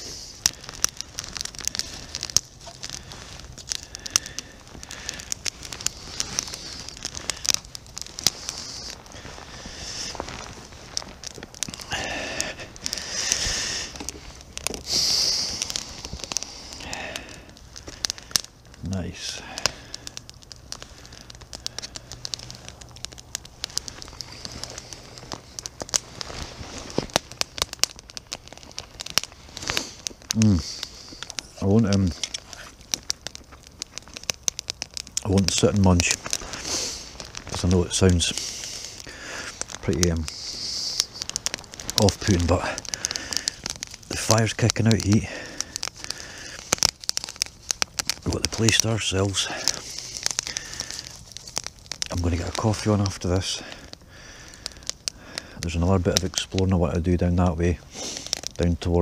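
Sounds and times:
steady high hiss: 0.0s - 27.6s, 35.1s - 51.4s
small fire crackling and popping: 0.0s - 59.0s.

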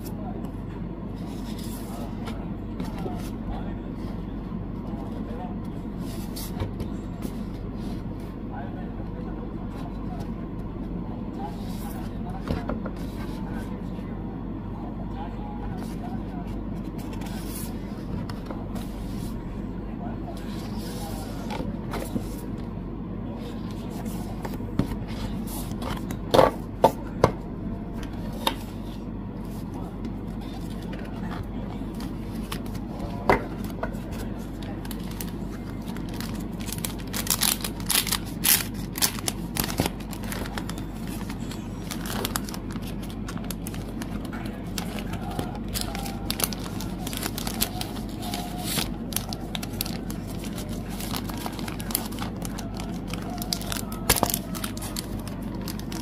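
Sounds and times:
steady low hum: 0.0s - 56.0s
plastic and paper crinkling: 30.4s - 56.0s.

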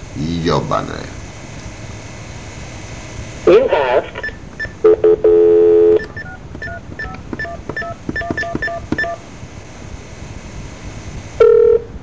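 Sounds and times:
buzzy phone line beep: 4.2s - 9.3s, 11.4s - 12.0s
touch-tone keypad beeps: 5.9s - 9.2s.

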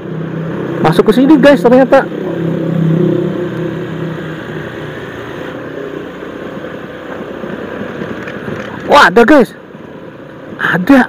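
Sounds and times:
scooter engine humming: 0.0s - 8.8s
road noise: 0.0s - 11.0s.

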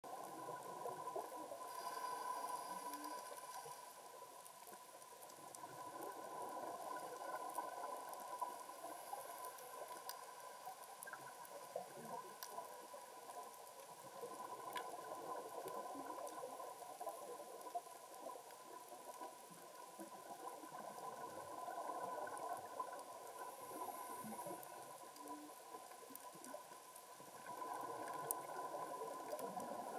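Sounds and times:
steady underwater hum: 0.0s - 29.9s
underwater clicks crackling: 0.1s - 29.9s.

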